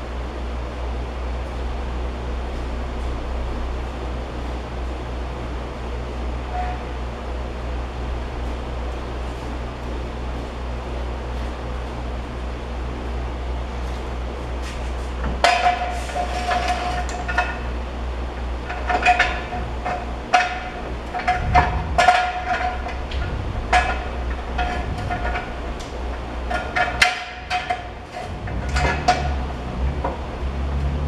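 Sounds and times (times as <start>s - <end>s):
low hum: 0.8s - 31.0s
metal tools clanking: 18.6s - 29.5s.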